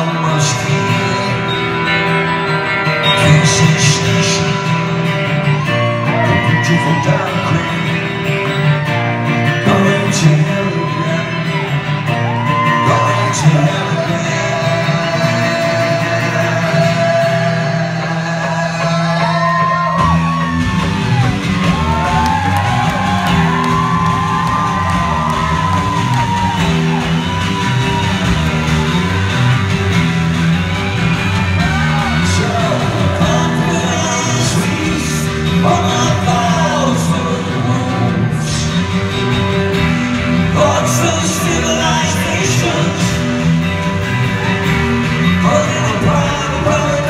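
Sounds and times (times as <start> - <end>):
man singing: 0.0 - 20.5, 31.6 - 43.6, 44.4 - 47.0
acoustic guitar: 0.0 - 47.0
bass guitar: 0.0 - 47.0.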